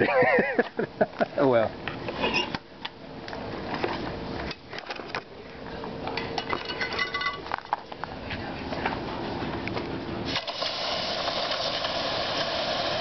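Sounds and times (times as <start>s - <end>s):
ringing metal clank: 6.2s - 7.5s
metal clinking and rattling: 6.2s - 7.9s.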